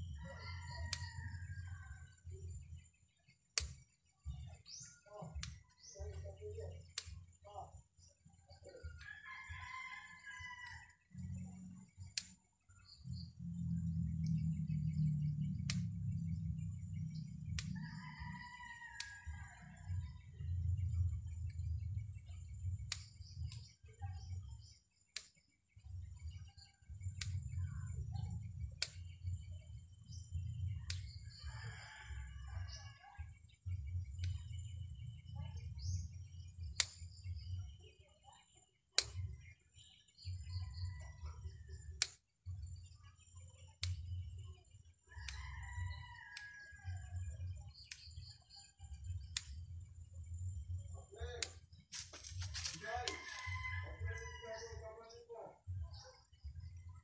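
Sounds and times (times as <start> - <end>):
birds chirping: 0.0 - 32.0
scissors snipping branches: 3.6 - 7.3, 12.0 - 13.2, 15.2 - 16.4, 17.2 - 18.4, 19.0 - 19.2, 22.8 - 23.7, 24.6 - 25.4, 27.0 - 27.7, 28.8 - 29.2, 30.9 - 31.2, 36.6 - 37.2, 39.0 - 39.4, 42.0 - 42.2, 45.2 - 46.7, 47.7 - 48.3, 49.2 - 49.6, 51.4 - 53.6
steady low hum: 11.0 - 18.4, 19.2 - 37.8, 38.8 - 54.1
low rumble: 12.8 - 18.3.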